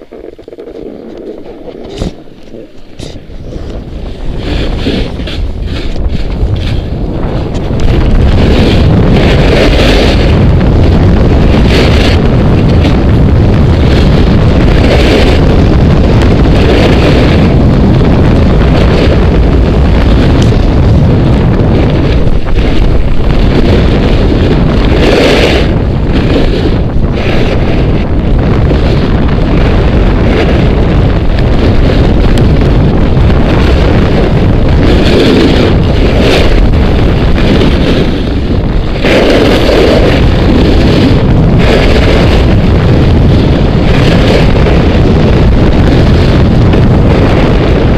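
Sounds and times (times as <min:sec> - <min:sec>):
snowboard edges scraping snow: 0:00.0 - 0:10.4, 0:21.8 - 0:28.0, 0:33.5 - 0:42.6
wind buffeting on microphone: 0:00.0 - 0:47.9.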